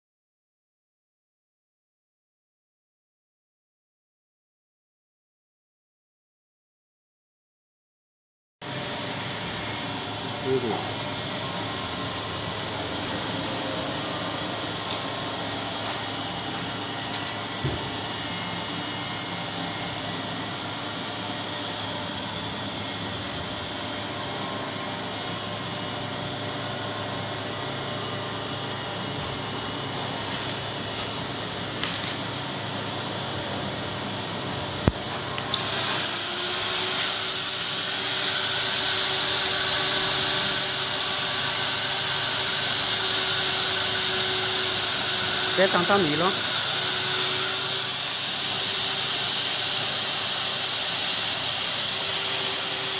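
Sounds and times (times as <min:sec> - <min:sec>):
die grinder whirring: 0:08.6 - 0:52.9
grinder cutting metal: 0:09.3 - 0:24.4, 0:29.0 - 0:32.4, 0:34.8 - 0:52.9.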